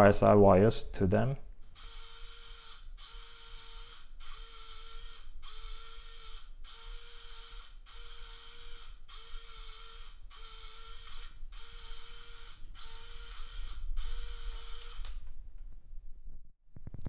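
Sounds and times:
servo motor whirring: 1.8s - 15.2s.

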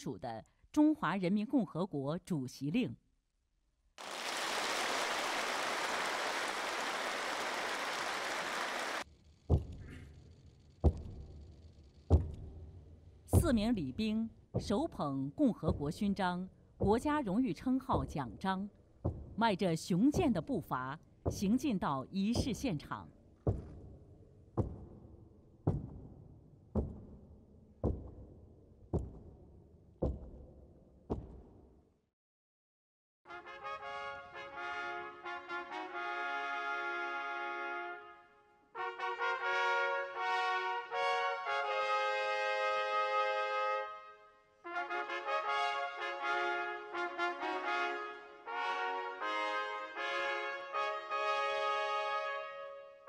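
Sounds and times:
audience applauding: 4.0s - 9.0s
heavy stamped footsteps: 12.1s - 12.5s, 19.0s - 19.4s, 23.4s - 31.7s
boots marching on hall floor: 19.0s - 19.4s, 21.2s - 21.6s, 22.4s - 22.6s, 23.4s - 31.7s.

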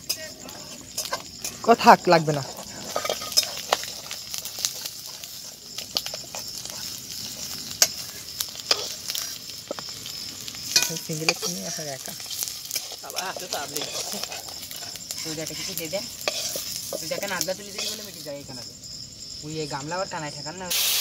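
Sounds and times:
oil sizzling in wok: 0.0s - 19.8s, 20.7s - 21.0s
metal spatula clinking on pan: 2.8s - 4.9s, 10.7s - 14.6s.

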